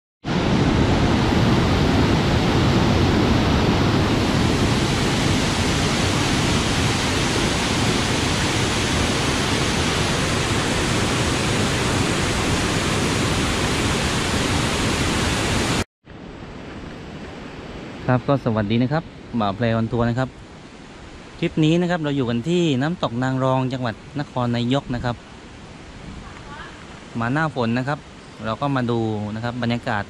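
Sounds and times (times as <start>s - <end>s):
waterfall rushing: 0.3s - 15.8s.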